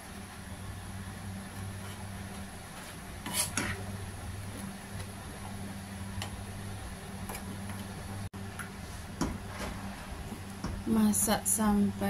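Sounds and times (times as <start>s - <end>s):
steady low hum: 0.0s - 12.0s
spoon scraping and tapping pan: 2.8s - 3.8s.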